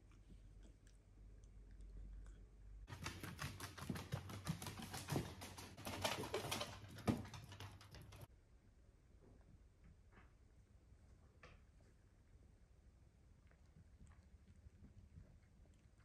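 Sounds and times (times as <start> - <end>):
dog claws clicking on wooden floor: 2.9 - 8.3.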